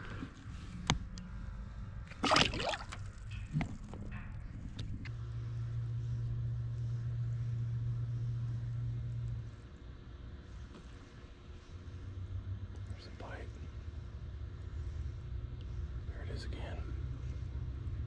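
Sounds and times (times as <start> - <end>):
fish splashing in water: 2.1 - 3.7.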